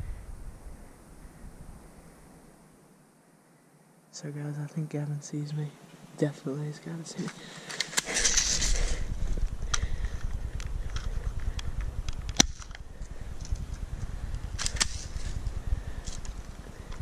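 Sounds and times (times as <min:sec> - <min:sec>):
wind noise: 0:00.0 - 0:02.6, 0:07.9 - 0:17.0
camera handling rumble: 0:07.2 - 0:17.0
sharp crack: 0:11.4 - 0:12.8, 0:14.5 - 0:15.4.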